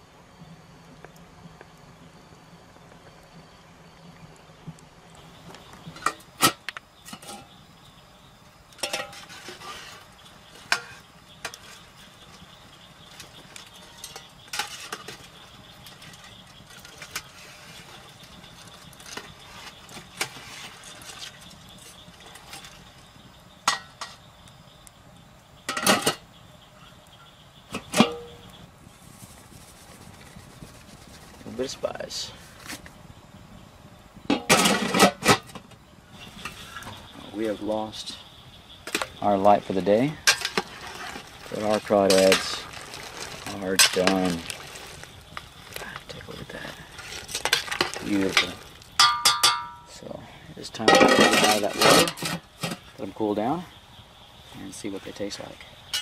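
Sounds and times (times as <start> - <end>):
low steady hiss: 0.0 - 56.0
utensil clinking on enamel pot: 47.3 - 50.0.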